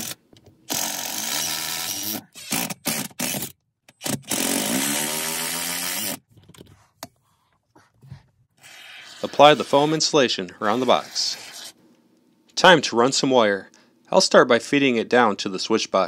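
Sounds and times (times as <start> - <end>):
drill driving screws: 0.0 - 6.2.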